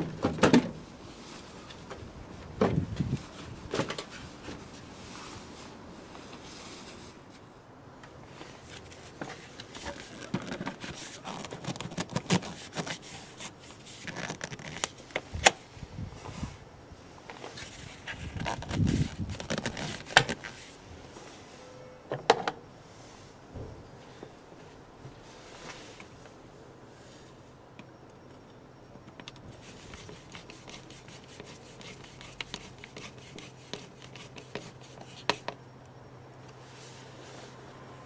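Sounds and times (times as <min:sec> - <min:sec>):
plastic parts scraping and knocking: 0:08.6 - 0:15.2, 0:17.6 - 0:20.6.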